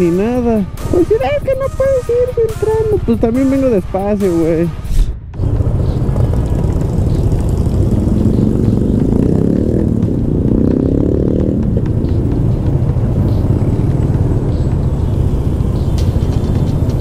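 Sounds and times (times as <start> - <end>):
low traffic rumble: 0.0 - 17.0
motorcycle engine running: 5.4 - 17.0.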